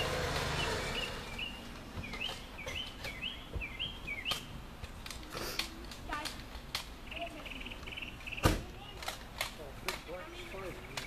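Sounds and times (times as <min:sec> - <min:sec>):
bird chirping rising calls: 0:00.0 - 0:04.6, 0:07.0 - 0:09.0.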